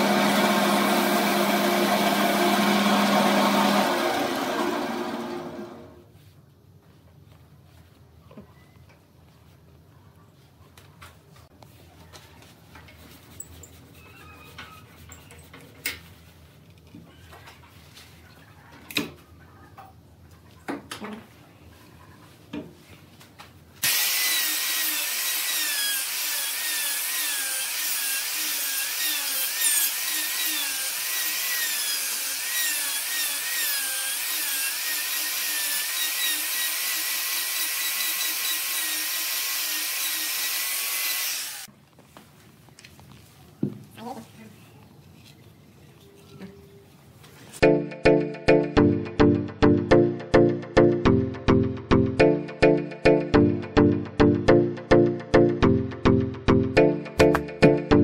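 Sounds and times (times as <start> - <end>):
angle grinder grinding wood: 0.0 - 5.9, 23.8 - 41.7.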